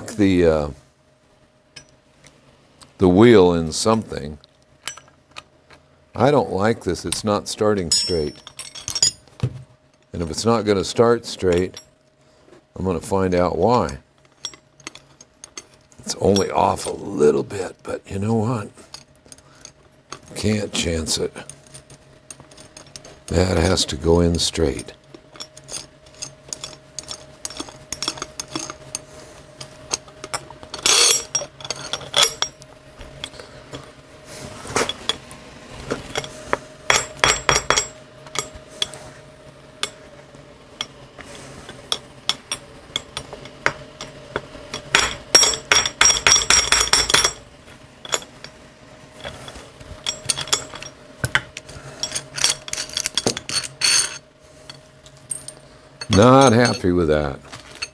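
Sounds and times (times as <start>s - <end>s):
steel parts clinking: 4.8s - 5.5s, 7.0s - 10.1s, 11.3s - 11.9s, 13.8s - 17.0s, 21.4s - 33.8s, 41.7s - 47.4s, 48.0s - 48.5s, 49.2s - 57.9s.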